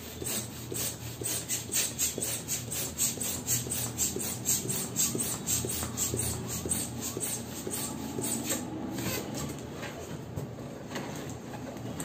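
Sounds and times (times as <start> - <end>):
balloon pump puffing air: 0.0 - 9.3.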